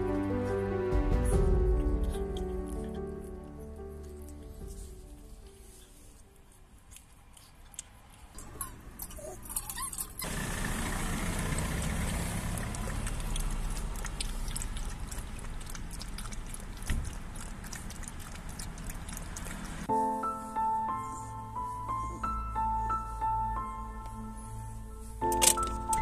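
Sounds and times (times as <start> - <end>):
puppy lapping water from metal bowl: 12.1 - 19.9.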